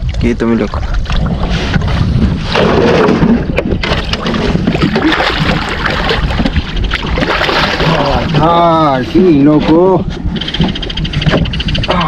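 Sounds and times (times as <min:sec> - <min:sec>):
water slapping boat hull: 0:00.0 - 0:12.0
wind buffeting microphone: 0:00.0 - 0:12.0
fish splashing: 0:00.7 - 0:08.6.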